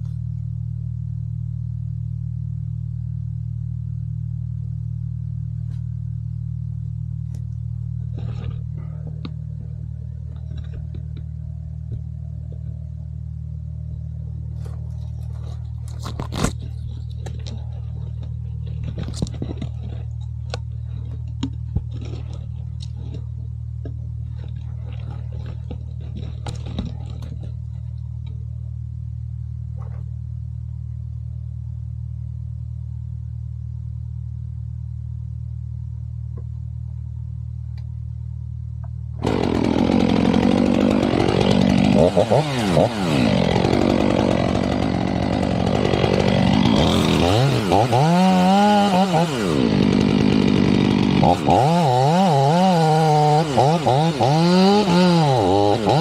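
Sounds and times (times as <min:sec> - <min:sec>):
chainsaw idling: 0:07.3 - 0:23.4, 0:24.2 - 0:28.4, 0:39.2 - 0:56.0
branches snapping and knocking: 0:14.6 - 0:23.3, 0:24.3 - 0:28.3, 0:39.2 - 0:56.0
chainsaw cutting at full throttle: 0:39.2 - 0:56.0.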